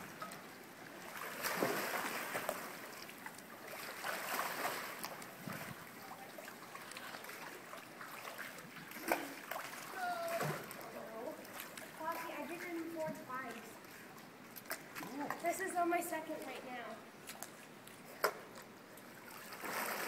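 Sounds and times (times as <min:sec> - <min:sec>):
pool water splashing: 0:00.0 - 0:20.0
sharp water slap: 0:01.4 - 0:02.7.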